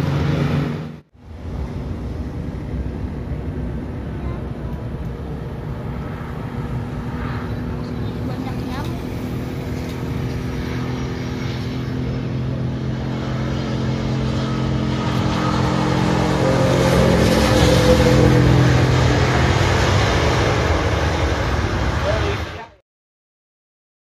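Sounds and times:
jet engines humming on landing: 0.0 - 22.8.

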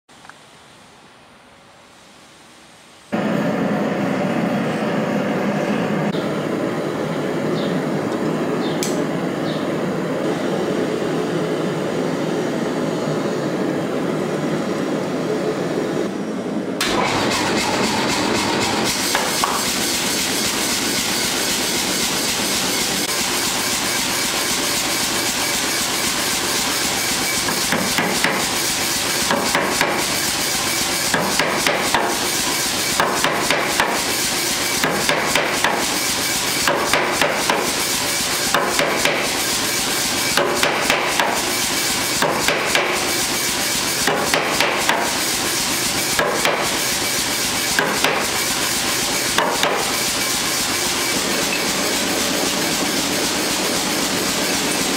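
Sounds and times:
air power hammer running: 3.1 - 54.9.

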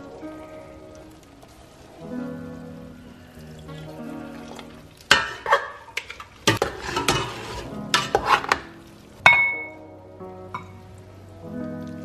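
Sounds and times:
tongs clattering in metal pot: 5.1 - 9.8.

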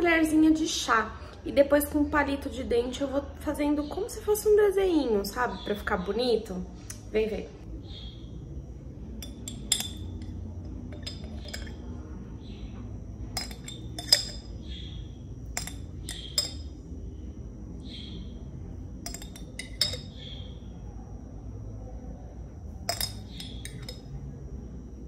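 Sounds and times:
teaspoon clinking in glass jar: 9.2 - 12.0, 13.3 - 14.6, 15.5 - 16.8, 19.0 - 20.3, 22.8 - 24.1.

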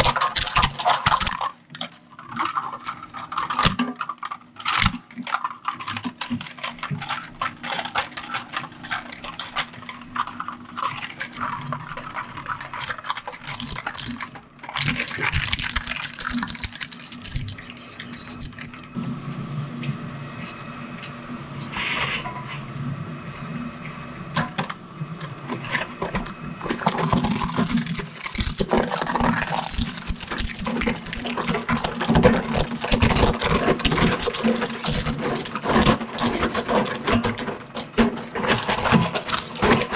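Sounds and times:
plastic cracking and crunching: 0.0 - 19.0, 25.6 - 39.9
shredder humming: 0.0 - 39.9.

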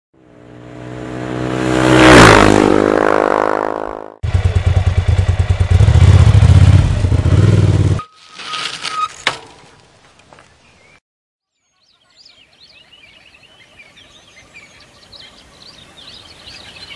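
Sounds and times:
engine running with fast throb: 0.2 - 8.0
vehicle engine passing by: 0.2 - 8.0.

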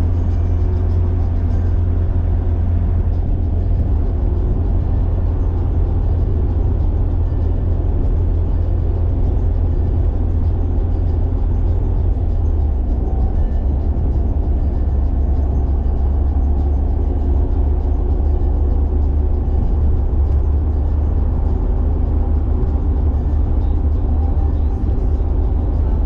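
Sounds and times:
car engine and road drone: 0.0 - 26.0.

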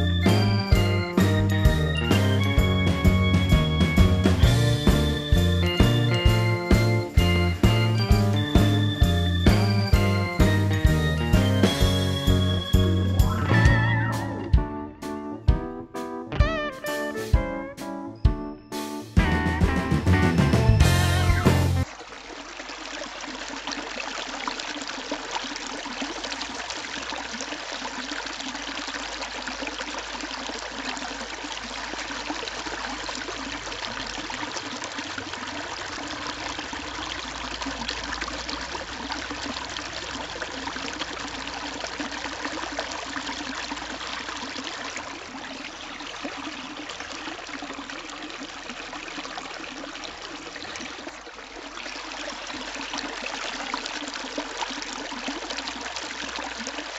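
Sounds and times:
fountain water running and splashing: 21.8 - 56.9.

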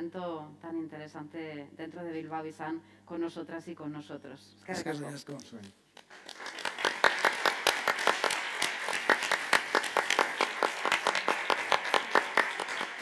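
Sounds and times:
audience applause: 6.1 - 13.0.

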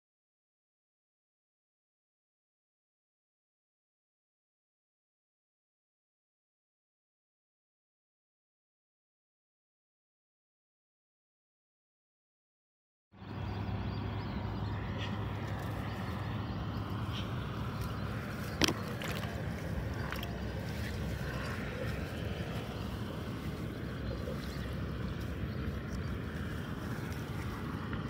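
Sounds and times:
steady low rumbling: 13.2 - 28.0.

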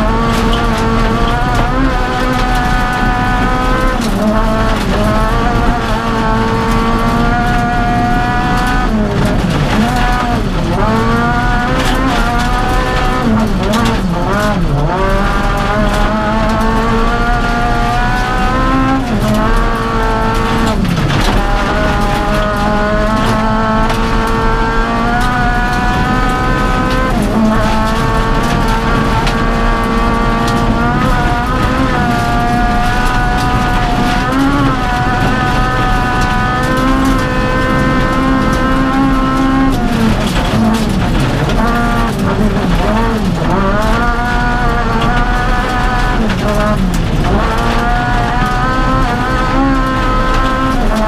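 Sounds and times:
rally car engine at high revs: 0.0 - 51.0
tyres on gravel: 0.0 - 51.0.

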